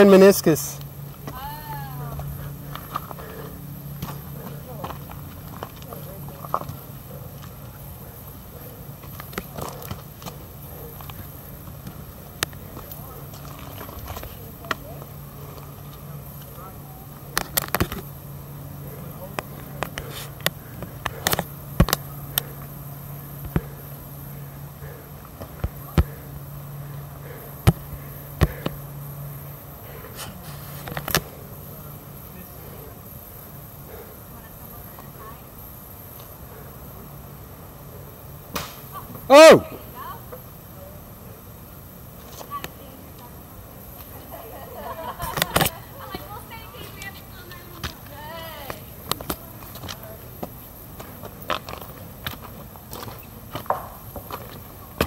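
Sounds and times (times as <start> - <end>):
low hum: 0.0 - 40.5
footsteps on rocky trail: 2.2 - 7.6, 47.8 - 55.0.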